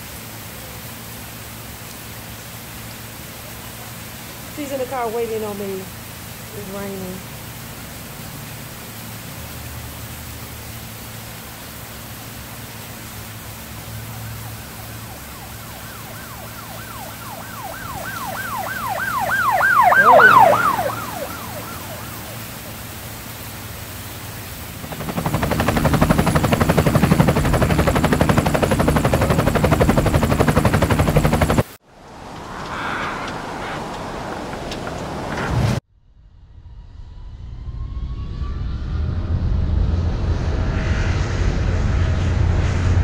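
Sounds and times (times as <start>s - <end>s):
rain hiss: 0.0s - 35.8s
loud steady rumbling: 12.2s - 35.8s
emergency siren yelping: 13.6s - 24.1s, 32.0s - 35.8s.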